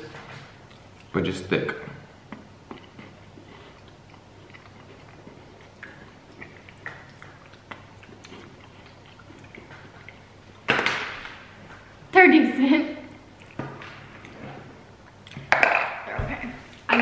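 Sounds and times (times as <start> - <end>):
chewing and crunching biscuits: 2.2 - 10.7.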